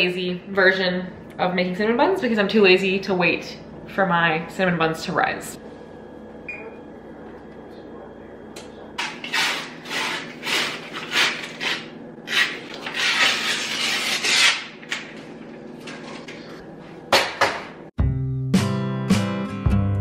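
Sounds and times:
paper wrapper tearing: 0:09.3 - 0:15.0.

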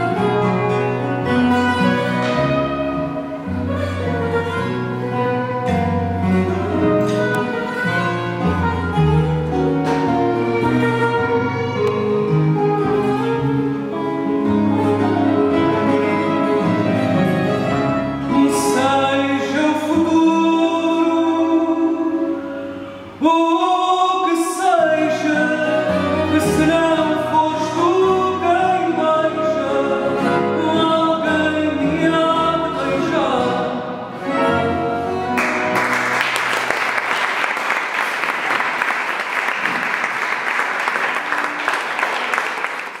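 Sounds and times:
guitars and bass guitar: 0:00.0 - 0:20.2
man singing: 0:18.2 - 0:35.0
audience applause: 0:35.4 - 0:43.0.

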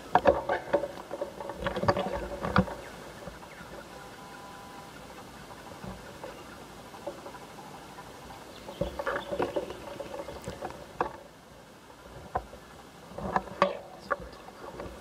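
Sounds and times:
leaves and twigs brushing: 0:00.0 - 0:11.4.

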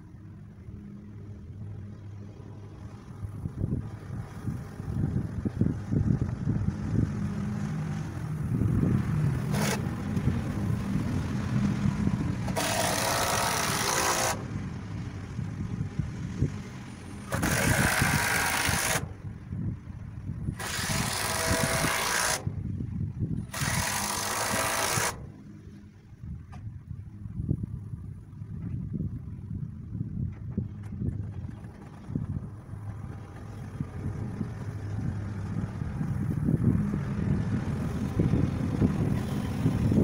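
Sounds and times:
wheel loader engine rumbling: 0:00.0 - 0:40.0
power tool running: 0:09.4 - 0:09.9, 0:12.4 - 0:14.5, 0:17.3 - 0:19.2, 0:20.5 - 0:22.5, 0:23.5 - 0:25.4.

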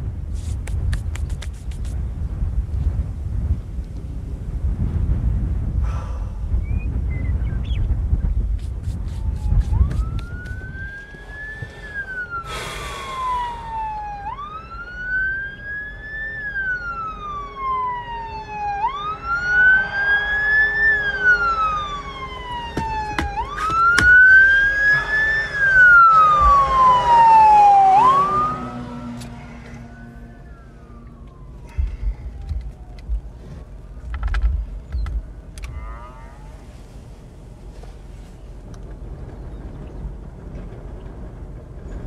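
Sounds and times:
siren wailing: 0:09.0 - 0:33.8.

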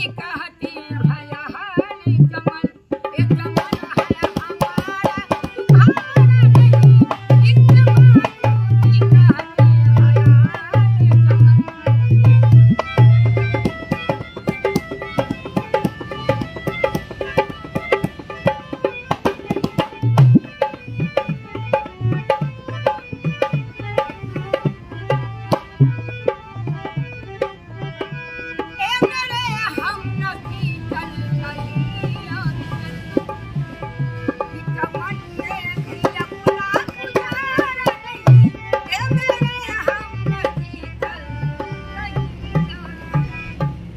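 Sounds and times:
hand drum rhythm: 0:00.0 - 0:43.9
harmonium chords: 0:00.0 - 0:43.9.

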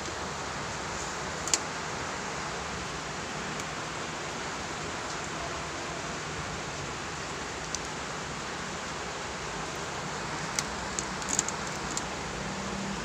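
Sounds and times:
steady hiss: 0:00.0 - 0:13.0.

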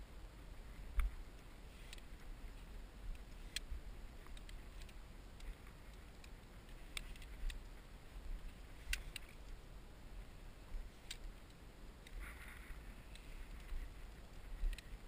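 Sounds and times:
clicks of climbing gear: 0:00.6 - 0:09.6, 0:10.7 - 0:15.0.

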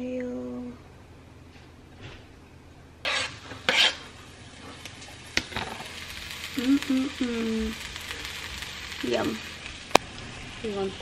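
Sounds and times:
food sizzling in hot oil: 0:03.0 - 0:11.0.

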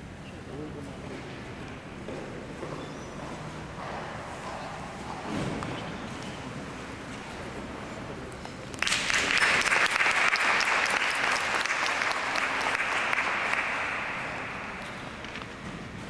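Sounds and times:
spectators applauding: 0:08.8 - 0:14.8.

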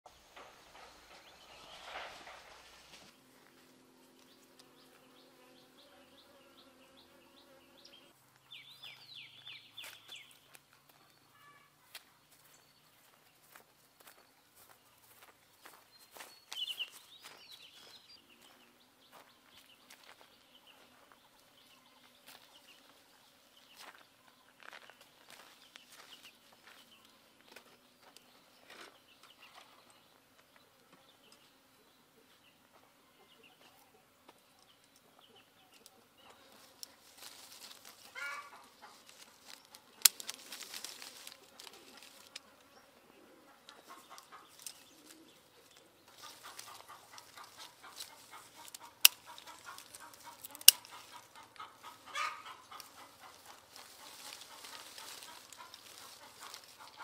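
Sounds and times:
leaves and branches rustling: 0:00.4 - 0:05.2, 0:36.3 - 0:42.8, 0:43.7 - 0:57.0
bird calling: 0:38.0 - 0:39.0, 0:43.1 - 0:57.0
scissors snipping stems: 0:48.6 - 0:51.2.

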